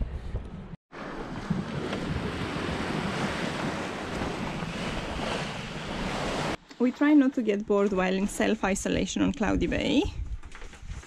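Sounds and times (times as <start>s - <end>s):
wind on microphone: 0.0s - 6.6s, 7.9s - 11.0s
sea rushing past hull: 0.9s - 6.6s.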